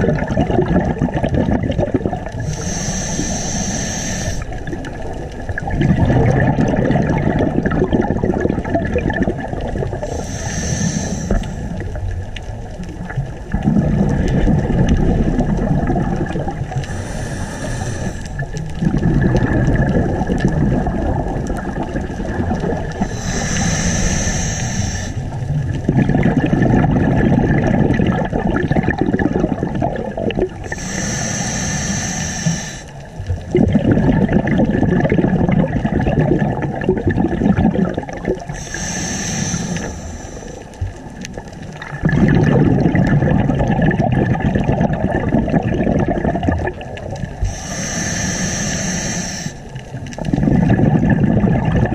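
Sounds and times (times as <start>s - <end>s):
bubbling rumble on exhale: 0.0s - 51.9s
regulator hiss on inhale: 2.3s - 4.6s, 10.0s - 12.0s, 16.7s - 18.5s, 23.0s - 25.4s, 30.6s - 33.2s, 38.4s - 41.7s, 47.4s - 50.0s.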